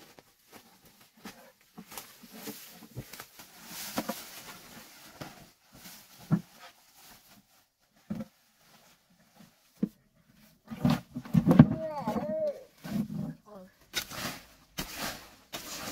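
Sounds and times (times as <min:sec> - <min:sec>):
leaves and branches rustling: 0:00.0 - 0:09.7.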